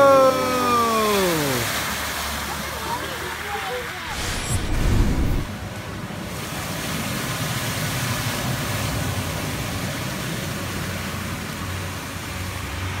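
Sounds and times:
tyres splashing through floodwater: 0.0s - 4.1s, 5.5s - 13.0s
low vehicle rumble: 3.9s - 5.8s.

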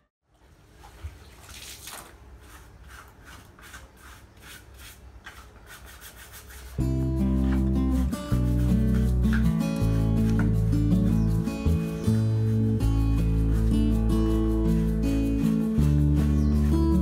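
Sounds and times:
scraping strokes: 1.8s - 17.0s
guitar music: 6.8s - 17.0s.

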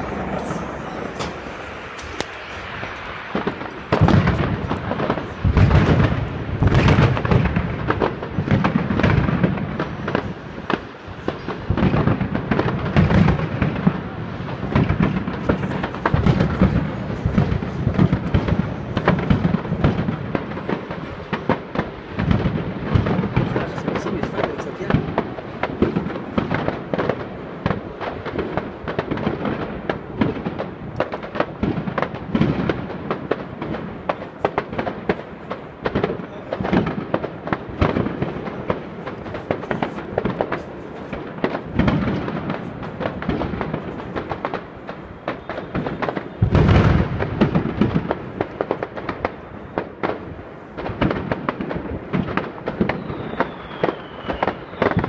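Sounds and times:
deep firework boom: 0.0s - 50.2s
fireworks bangs and crackles: 0.0s - 55.0s.

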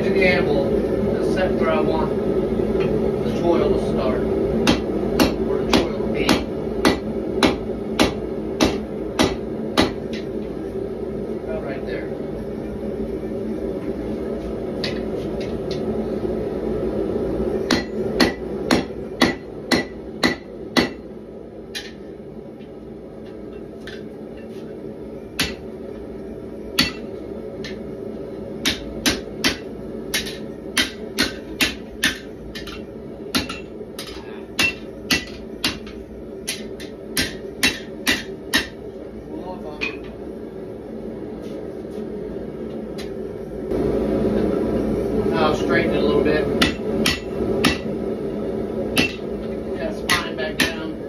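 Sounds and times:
forge hum: 0.0s - 51.0s
hammer striking metal on anvil: 4.6s - 10.3s, 17.7s - 21.0s, 21.7s - 22.0s, 25.4s - 25.7s, 26.8s - 27.8s, 28.6s - 38.8s, 46.6s - 47.9s, 48.9s - 49.3s, 50.1s - 50.9s.

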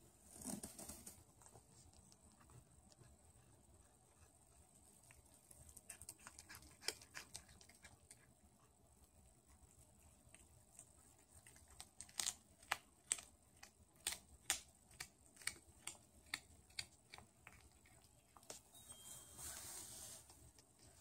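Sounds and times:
cat crunching on mouse: 1.8s - 18.6s.

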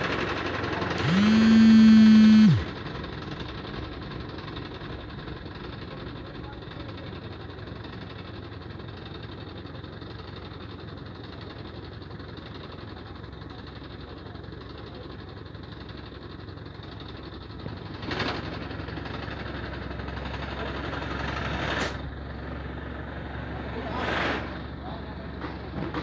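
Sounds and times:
crane diesel engine running: 0.0s - 26.0s
short burst of noise: 1.0s - 2.7s.

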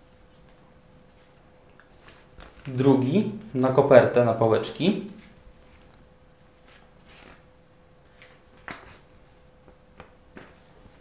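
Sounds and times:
faint steady hum: 0.0s - 11.0s
paper rustling and tapping: 1.8s - 2.8s, 8.1s - 9.0s, 9.7s - 11.0s.

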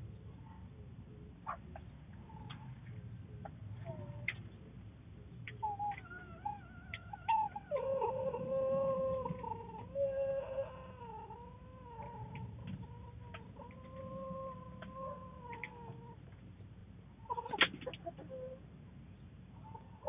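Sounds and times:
wavering animal call: 5.5s - 16.3s, 19.6s - 20.0s.

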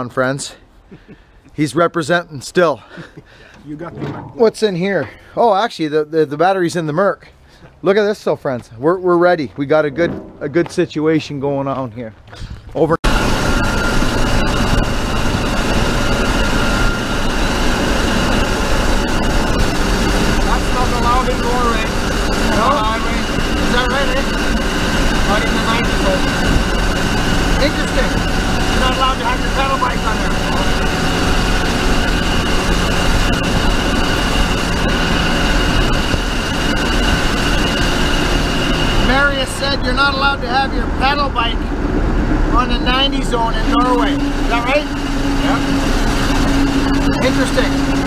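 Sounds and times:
wind noise: 12.3s - 40.1s
high whine: 13.0s - 48.0s
pickup truck engine and road noise: 13.0s - 48.0s.

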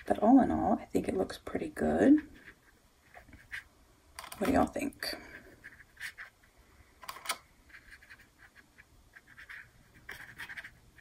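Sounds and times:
paintbrush scratching on paper: 2.0s - 3.7s, 5.4s - 6.5s, 7.7s - 11.0s.

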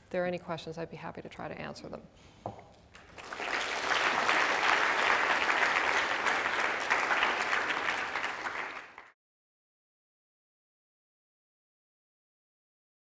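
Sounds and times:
audience applauding: 3.0s - 9.2s.

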